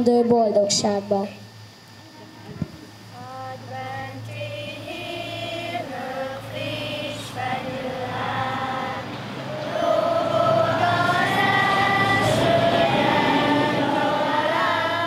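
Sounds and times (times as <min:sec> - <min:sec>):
steady low hum: 0:00.0 - 0:15.0
choir singing slow song: 0:03.0 - 0:15.0.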